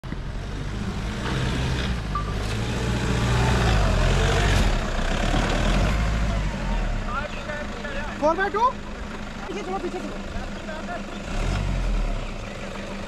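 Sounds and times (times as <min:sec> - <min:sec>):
diesel engine running under load: 0:00.0 - 0:13.0.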